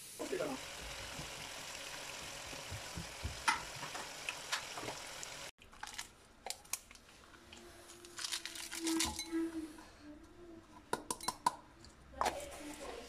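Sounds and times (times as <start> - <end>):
food sizzling in pan: 0.0 - 5.5
crinkling and small clicks: 5.6 - 9.4.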